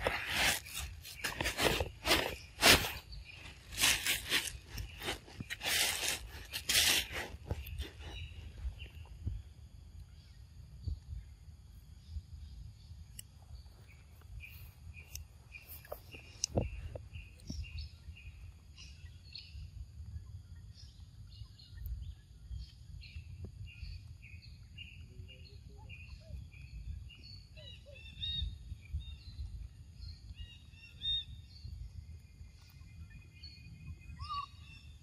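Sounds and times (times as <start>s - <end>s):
birds chirping: 0.0s - 11.3s, 12.0s - 19.8s.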